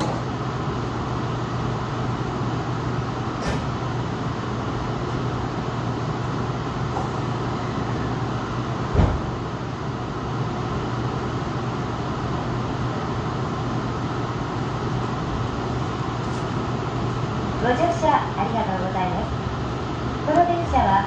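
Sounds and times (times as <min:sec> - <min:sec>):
train cabin hum: 0:00.0 - 0:21.0
train thump: 0:08.9 - 0:09.4.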